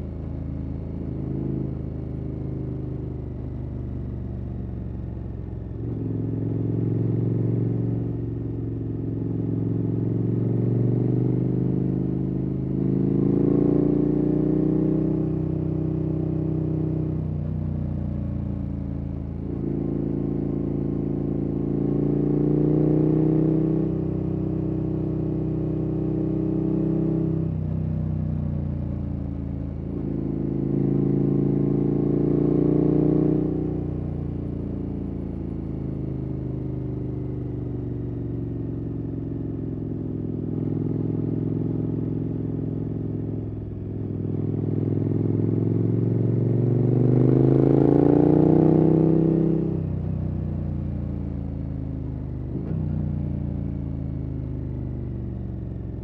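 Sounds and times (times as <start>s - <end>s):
motorcycle engine revving: 19.4s - 27.8s, 29.8s - 34.2s, 37.9s - 50.1s, 52.4s - 54.2s.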